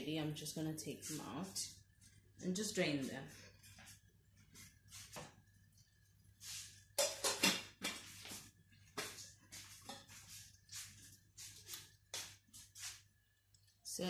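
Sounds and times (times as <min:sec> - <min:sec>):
steel cookware clattering: 0:07.0 - 0:07.7.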